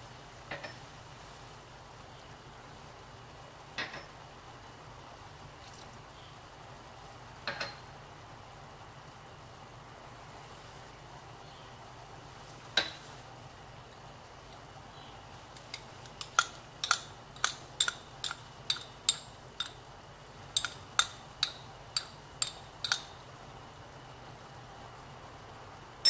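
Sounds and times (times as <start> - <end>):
metal spoon clinking on container: 15.7 - 19.8, 20.5 - 23.2.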